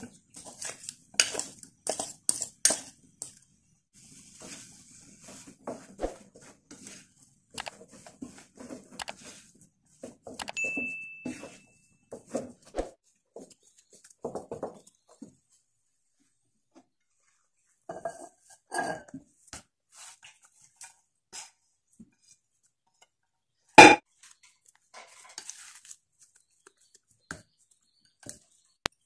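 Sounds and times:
spatula scraping mashed potato: 0.0s - 3.4s, 4.0s - 10.3s.

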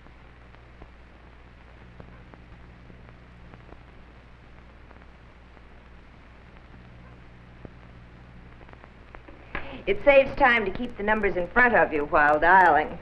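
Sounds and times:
faint clicks and crackles: 0.0s - 13.0s
low hum and hiss: 0.0s - 13.0s.

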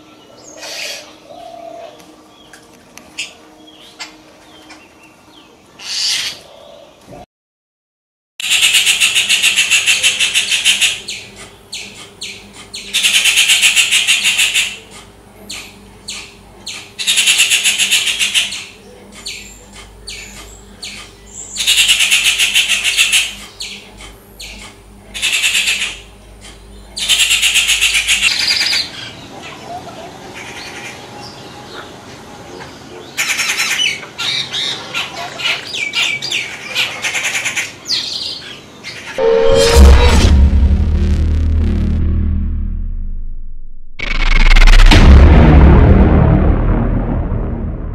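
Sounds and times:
bird giving harsh grating calls: 5.8s - 6.4s.

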